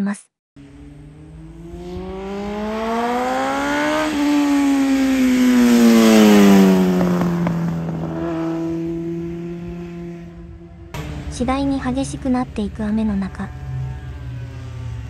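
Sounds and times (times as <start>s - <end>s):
motorcycle engine passing by: 0.6s - 15.0s.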